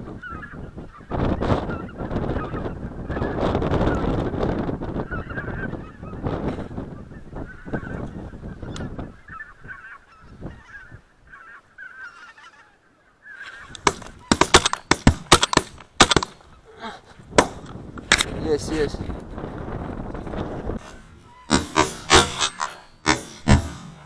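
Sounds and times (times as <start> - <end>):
geese honking: 9.2 - 14.8, 20.8 - 24.0
shotgun shots: 13.8 - 16.4, 20.8 - 24.0.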